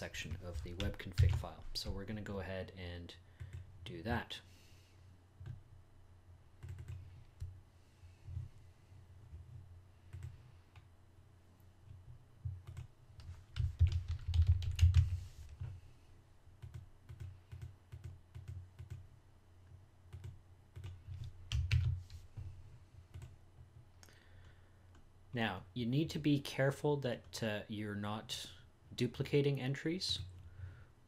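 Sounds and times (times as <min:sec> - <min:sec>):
computer keyboard typing: 0:00.4 - 0:01.6, 0:06.6 - 0:07.5, 0:09.3 - 0:10.9, 0:12.6 - 0:15.2, 0:16.6 - 0:19.0, 0:20.1 - 0:22.1, 0:23.1 - 0:23.4.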